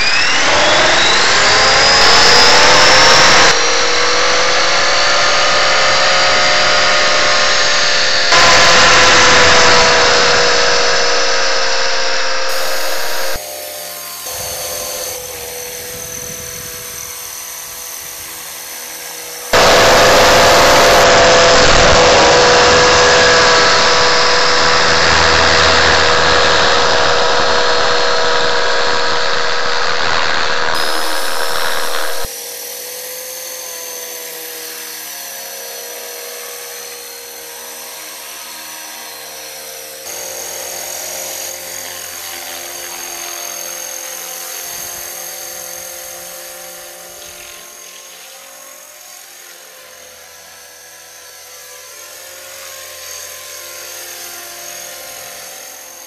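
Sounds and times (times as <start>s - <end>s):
model helicopter motor and rotors: 0.0s - 56.0s.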